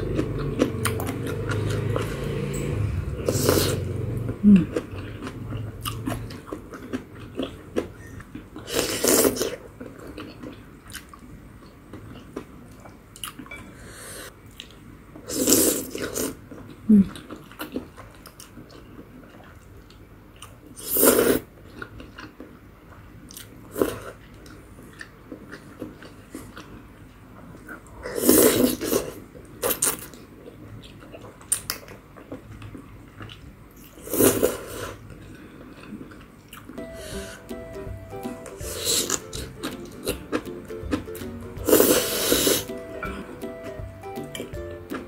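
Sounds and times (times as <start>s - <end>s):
soft chewing: 3.3s - 13.6s, 14.5s - 20.8s, 21.5s - 36.8s, 38.7s - 43.3s.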